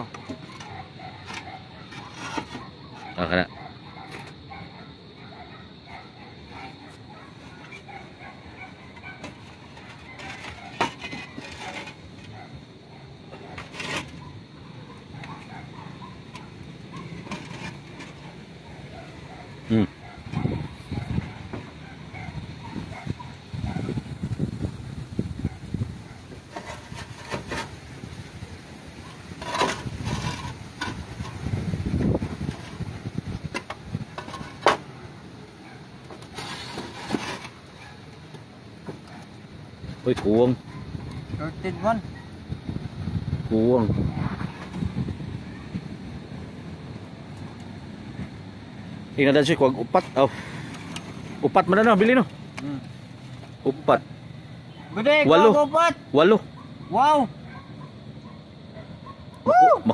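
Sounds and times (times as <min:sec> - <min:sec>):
roof tiles knocking and scraping: 0:00.0 - 0:03.1, 0:08.5 - 0:12.5, 0:16.2 - 0:19.2, 0:26.3 - 0:27.9, 0:29.1 - 0:35.0, 0:36.0 - 0:39.3.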